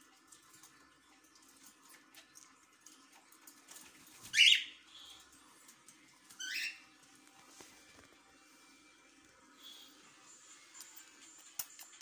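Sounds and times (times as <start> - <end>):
parrot harsh calls: 6.4 - 6.8.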